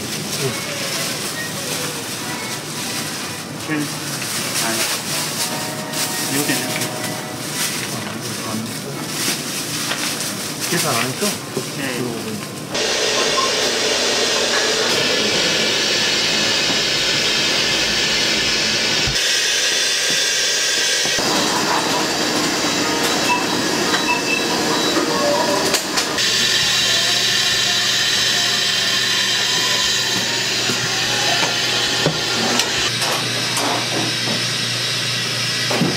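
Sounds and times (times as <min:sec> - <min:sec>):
steam hissing: 0:12.7 - 0:35.9.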